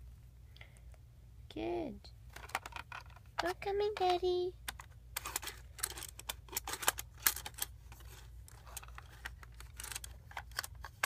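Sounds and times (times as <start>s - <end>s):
faint low hum: 0.0s - 11.0s
plastic figurines clicking: 2.4s - 7.7s, 8.5s - 11.0s.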